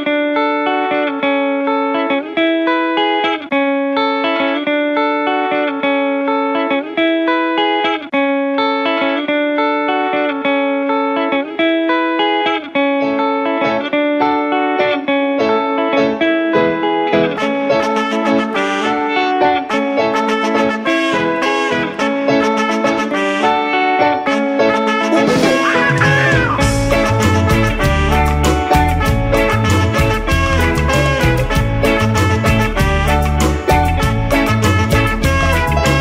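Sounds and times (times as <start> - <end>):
guitar plucked notes: 0.0 - 36.0.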